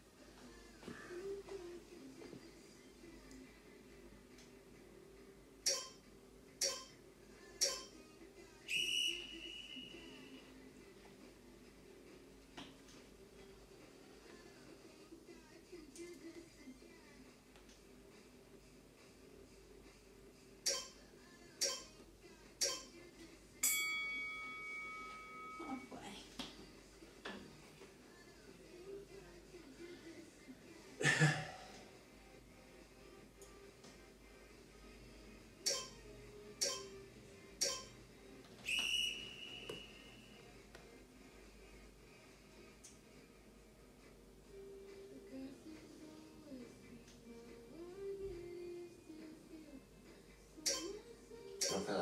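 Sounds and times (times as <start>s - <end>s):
timer beeps: 5.6s - 6.0s, 6.6s - 7.0s, 7.6s - 8.0s, 20.7s - 21.0s, 21.6s - 22.0s, 22.6s - 23.0s, 35.7s - 37.0s, 37.6s - 38.0s, 50.7s - 51.0s, 51.6s - 51.9s
sharp metallic clinks: 23.6s - 25.8s.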